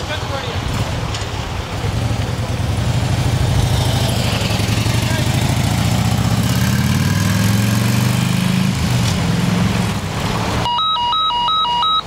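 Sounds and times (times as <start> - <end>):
two-tone electronic alarm: 10.7 - 12.0.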